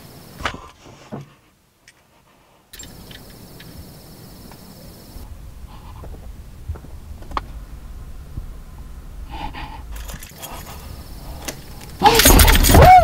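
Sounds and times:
small clicks: 0:02.8 - 0:03.8
low rumble: 0:03.3 - 0:12.0.

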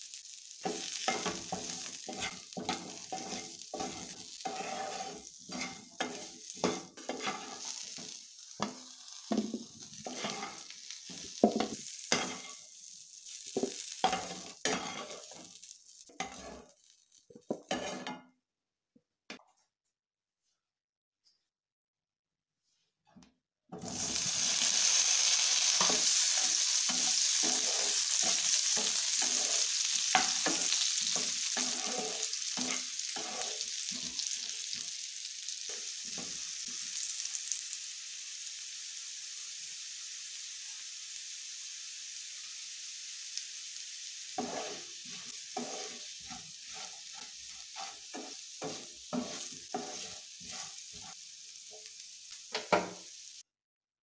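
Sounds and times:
potatoes sizzling in hot oil: 0:00.0 - 0:18.1, 0:23.8 - 0:53.5
spatula scraping a pan: 0:00.6 - 0:16.8, 0:17.4 - 0:18.3, 0:23.8 - 0:35.0, 0:44.2 - 0:53.0
potatoes knocking against pan: 0:08.6 - 0:10.2, 0:11.2 - 0:12.4.

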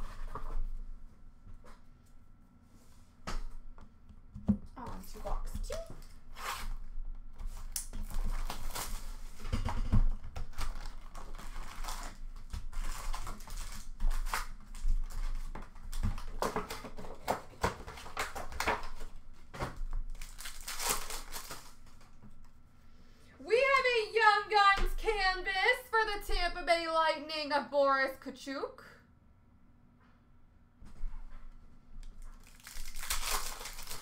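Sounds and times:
card packaging crinkling and tearing: 0:07.6 - 0:09.4, 0:10.3 - 0:22.2, 0:32.0 - 0:34.0.

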